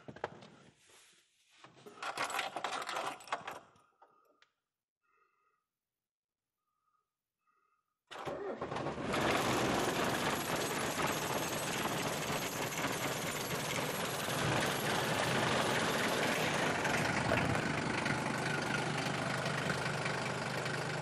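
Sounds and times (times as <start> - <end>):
van engine starting and idling: 8.1 - 21.0.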